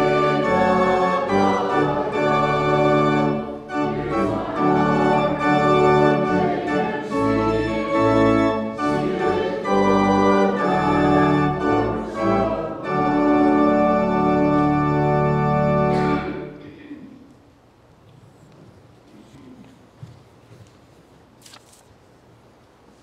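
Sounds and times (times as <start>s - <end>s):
organ playing sustained chords: 0.0s - 16.6s.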